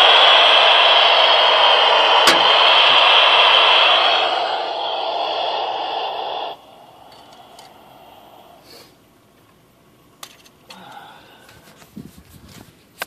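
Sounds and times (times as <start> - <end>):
radio static hiss: 0.0 - 8.9.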